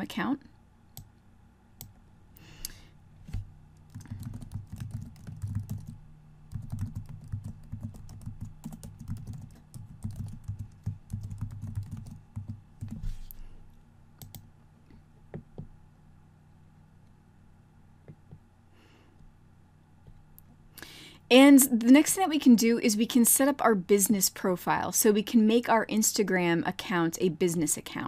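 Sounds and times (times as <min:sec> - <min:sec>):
typing on a computer keyboard: 0:03.9 - 0:13.0, 0:14.2 - 0:14.4.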